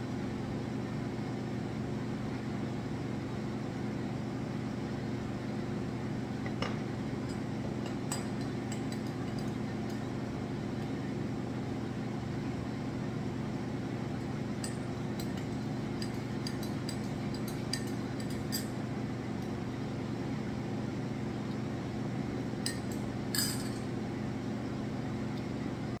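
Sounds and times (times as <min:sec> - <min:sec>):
appliance hum: 0:00.0 - 0:26.0
metal spoon clinking on mug: 0:07.8 - 0:10.0, 0:14.6 - 0:18.8, 0:22.6 - 0:23.9.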